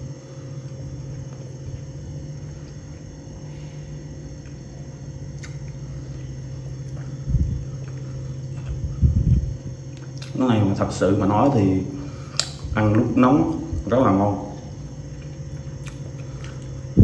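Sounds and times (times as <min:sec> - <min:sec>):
low background hum: 0:00.0 - 0:17.0.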